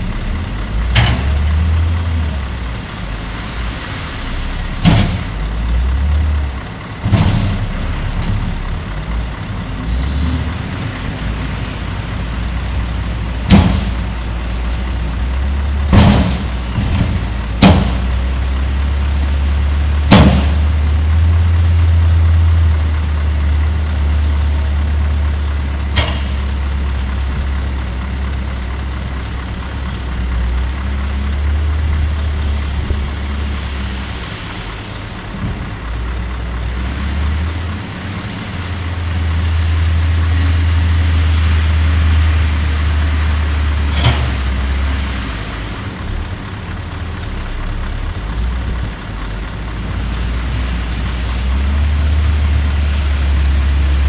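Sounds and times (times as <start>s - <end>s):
diesel truck engine revving: 0.0s - 54.0s
sharp metallic knocks: 13.5s - 14.0s, 15.9s - 18.2s, 20.1s - 20.7s, 25.9s - 26.5s.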